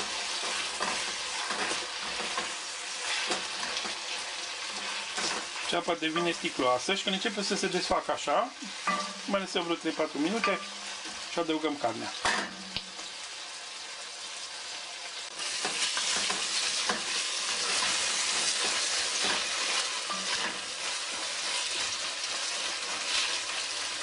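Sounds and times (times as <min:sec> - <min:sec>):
onions sizzling in oil: 0:00.0 - 0:24.0.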